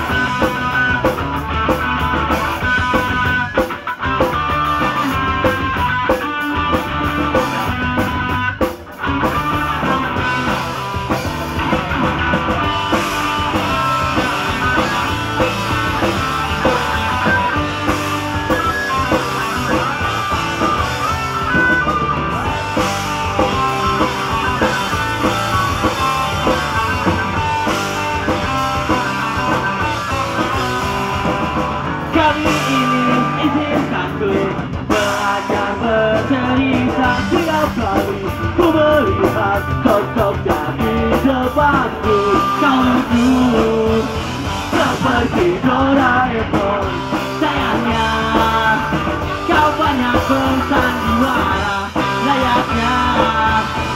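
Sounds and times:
live pop punk band: 0.0 - 53.9
person singing: 32.1 - 53.9.

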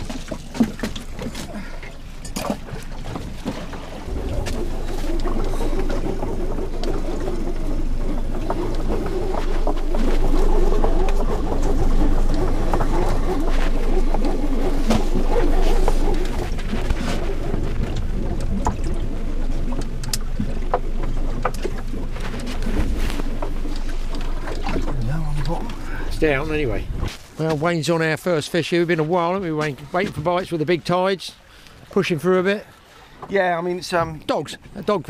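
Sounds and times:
water slapping against boat hull: 0.0 - 35.0.

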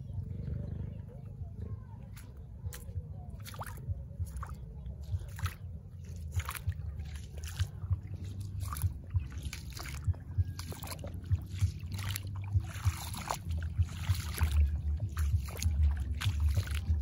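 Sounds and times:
wind rumble on microphone: 0.0 - 17.0
footsteps crunching on dry litter: 2.2 - 17.0.

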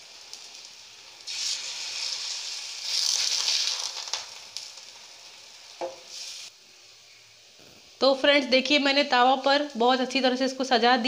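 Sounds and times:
batter slices sizzling in oil: 0.0 - 8.0.

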